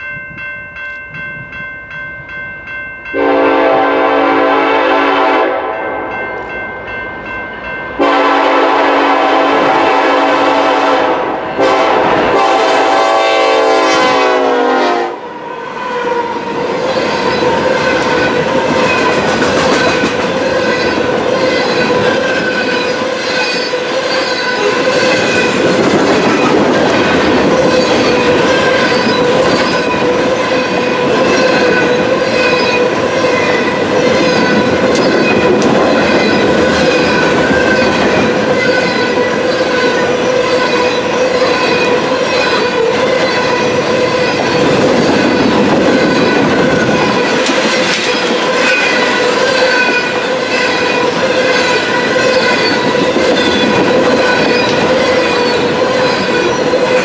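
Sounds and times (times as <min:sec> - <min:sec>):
train wheel noise: 0:00.0 - 0:57.0
locomotive air horn: 0:03.2 - 0:05.8, 0:08.0 - 0:15.2.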